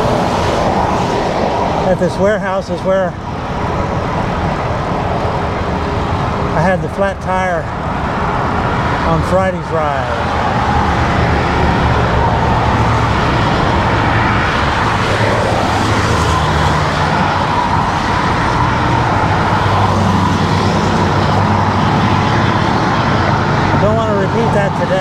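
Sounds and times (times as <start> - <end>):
wind on microphone: 0.0 - 6.5
road traffic passing: 0.0 - 25.0.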